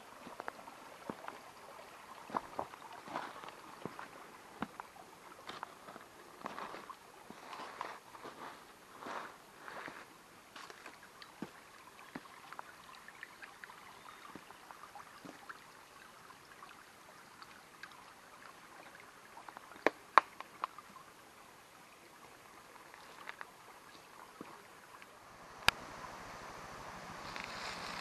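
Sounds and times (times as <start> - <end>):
stream trickling over rocks: 0.0 - 28.0
footsteps on stony path: 2.3 - 4.8, 5.5 - 10.0, 27.2 - 28.0.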